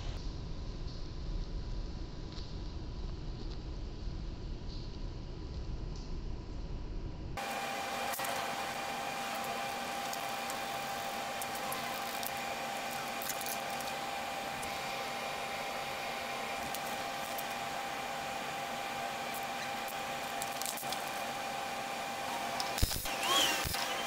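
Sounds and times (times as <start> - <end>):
steady whirring hum: 0.0 - 24.0.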